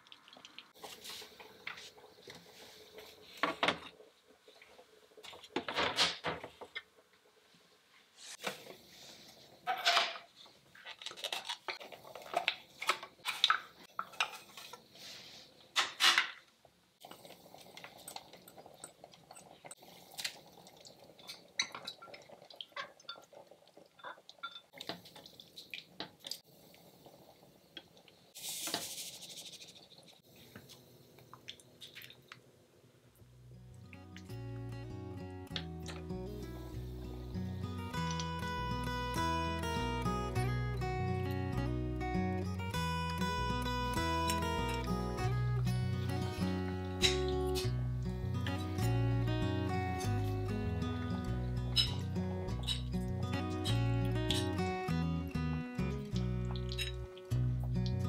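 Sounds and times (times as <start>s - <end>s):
glass containers clinking: 51.6s - 54.6s, 56.5s - 57.1s.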